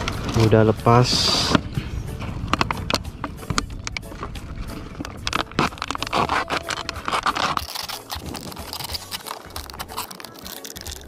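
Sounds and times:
plastic bottle crinkling: 2.4 - 11.0.

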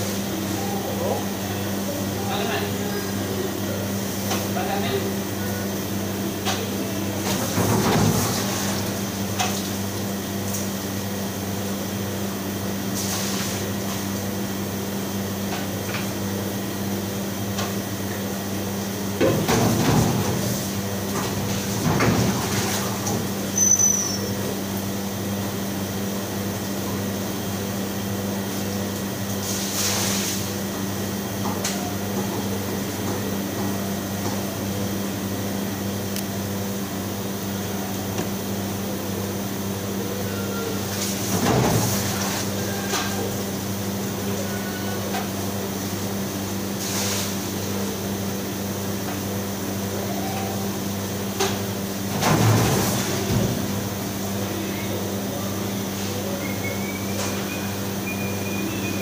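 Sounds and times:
kitchen machinery humming: 0.0 - 59.0.

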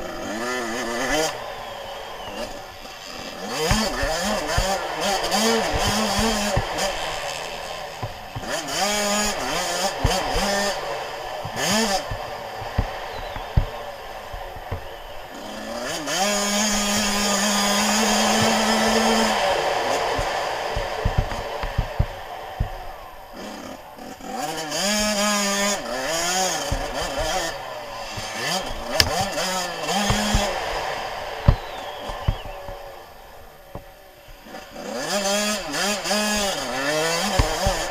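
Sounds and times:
two-stroke motorcycle engine revving: 0.0 - 37.9
low thumps: 3.6 - 15.4, 20.0 - 23.2, 26.6 - 34.5
sharp knocks: 11.4 - 14.9, 28.1 - 30.7.

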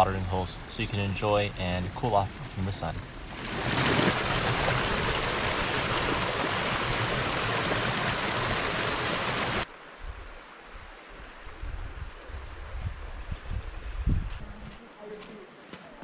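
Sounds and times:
creek water rushing over boulders: 3.0 - 11.4.

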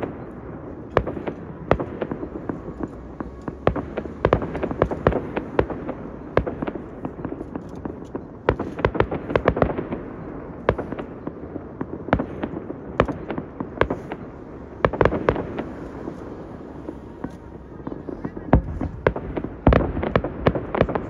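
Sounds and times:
fireworks bangs and cracks: 0.0 - 21.0.

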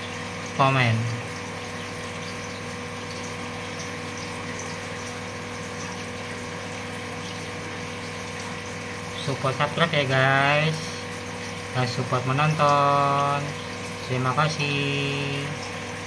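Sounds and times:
aquarium pump humming: 0.0 - 16.0.

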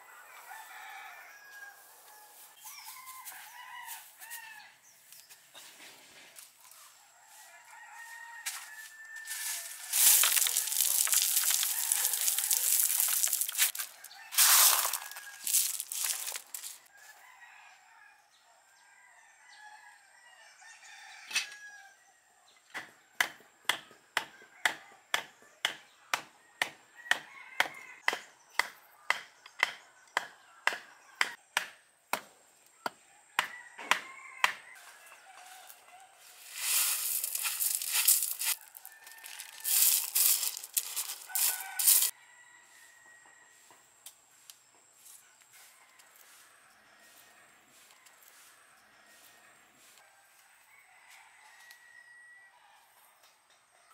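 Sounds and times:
pebbles rattling into planter: 9.3 - 16.9, 36.4 - 42.1.

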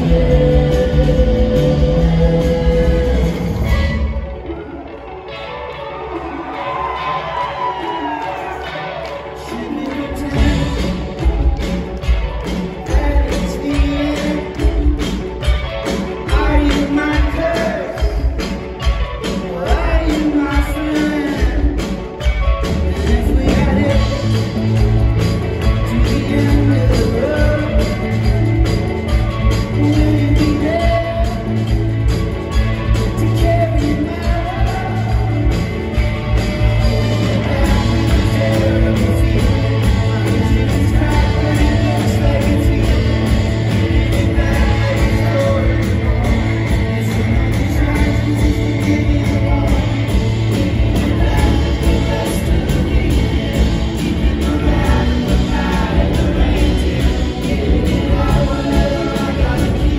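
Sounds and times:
person singing: 0.0 - 4.7, 6.1 - 59.9
live rock band: 0.0 - 59.9.

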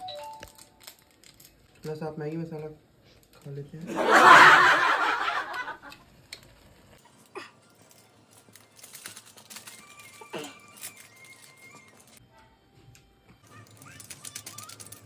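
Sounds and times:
foil sachet crinkling: 0.1 - 1.9, 6.1 - 12.2, 13.5 - 15.0.

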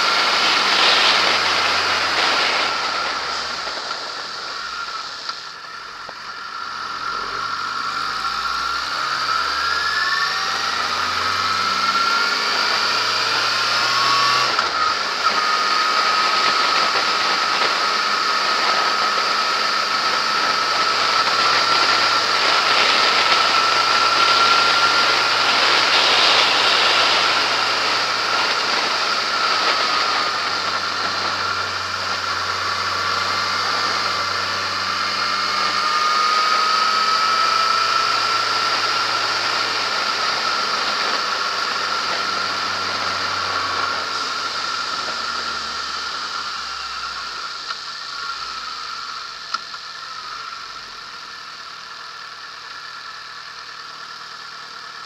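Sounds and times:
motorcycle engine accelerating: 0.0 - 55.0.

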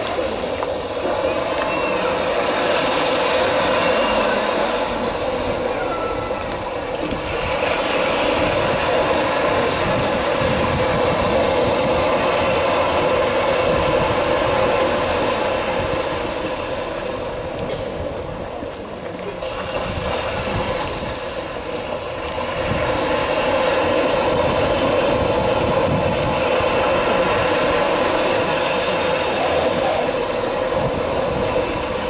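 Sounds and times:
loud rushing noise: 0.0 - 32.0.

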